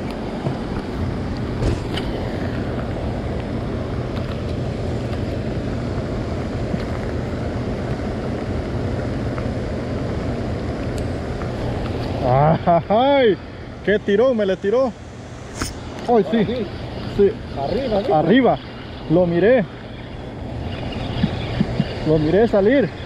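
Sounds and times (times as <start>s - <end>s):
boat motor humming: 0.0s - 23.0s
wind noise: 18.6s - 23.0s.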